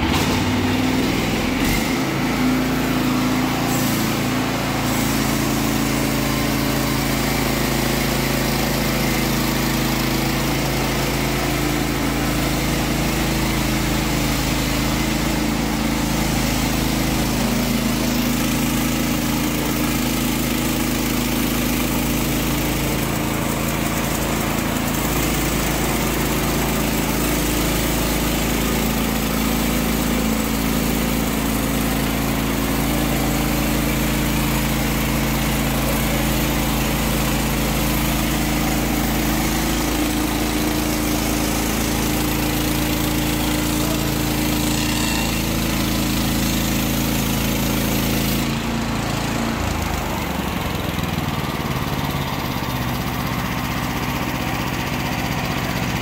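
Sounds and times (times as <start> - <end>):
band saw blade cutting log: 0.0 - 56.0
small gasoline engine running: 0.0 - 56.0.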